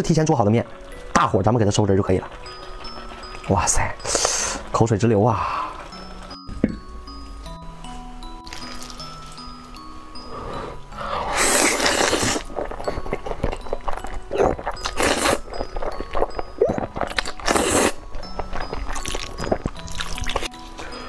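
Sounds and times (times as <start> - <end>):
wet chewing: 0.7 - 4.6, 8.4 - 9.8, 11.2 - 21.0
person slurping noodles: 10.2 - 13.4, 14.3 - 15.5, 16.2 - 18.0.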